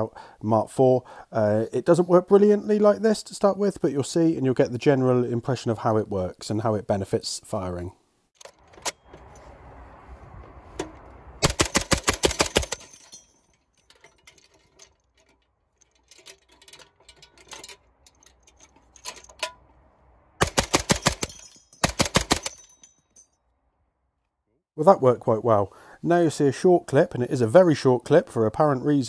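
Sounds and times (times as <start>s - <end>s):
machine gun bursts: 11.4s - 12.9s, 20.4s - 22.6s.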